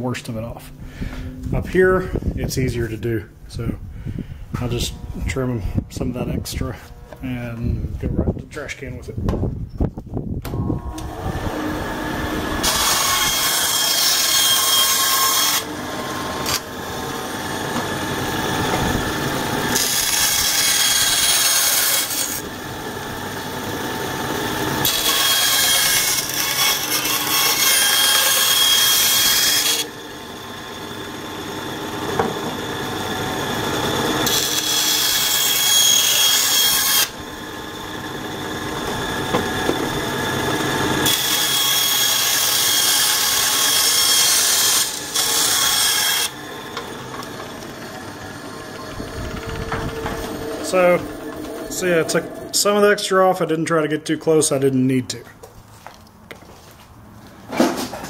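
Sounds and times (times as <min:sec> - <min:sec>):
bandsaw running: 0:10.5 - 0:53.0
bandsaw cutting plastic rasp: 0:10.9 - 0:31.2, 0:31.8 - 0:52.6.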